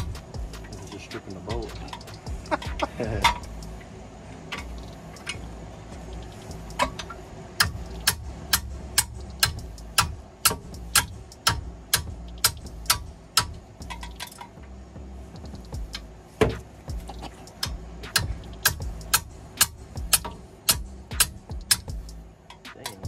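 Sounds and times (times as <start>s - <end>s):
hammer striking metal: 6.8s - 14.4s, 17.2s - 23.0s.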